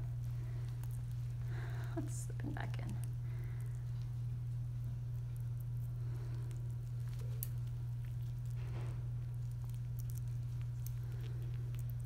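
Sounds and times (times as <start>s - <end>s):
steady low hum: 0.0s - 12.0s
wet squishing: 0.0s - 12.0s.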